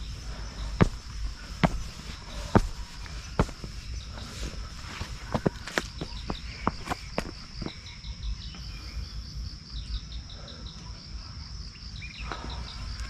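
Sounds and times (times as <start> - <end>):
footstep on path: 0.0 - 7.8
insects trilling: 0.0 - 13.0.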